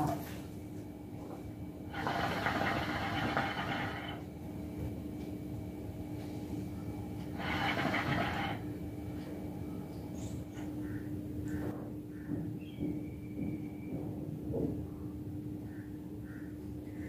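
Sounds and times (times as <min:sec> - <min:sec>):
steady low hum: 0:00.0 - 0:17.0
hookah water bubbling: 0:01.9 - 0:04.2, 0:07.4 - 0:08.6.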